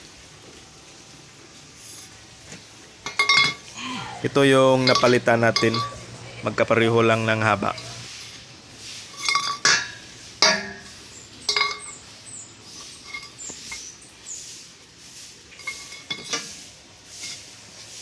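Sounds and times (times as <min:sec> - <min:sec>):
metal pipes clinking together: 0:03.0 - 0:03.7, 0:04.8 - 0:06.1, 0:09.1 - 0:12.1, 0:12.8 - 0:13.9, 0:15.5 - 0:16.5
pipes knocking on concrete: 0:03.0 - 0:03.7, 0:04.8 - 0:06.1, 0:09.2 - 0:12.1.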